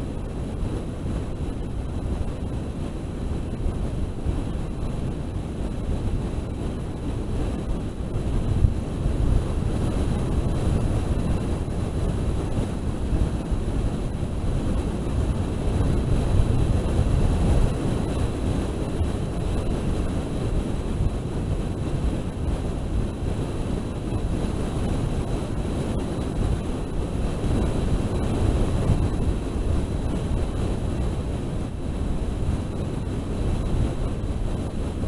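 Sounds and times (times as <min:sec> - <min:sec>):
wind buffeting microphone: 0:00.0 - 0:35.0.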